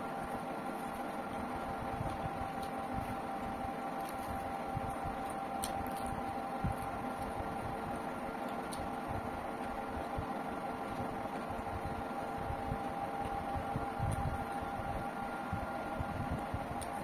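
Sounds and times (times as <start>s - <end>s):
machine hum: 0.0s - 17.0s.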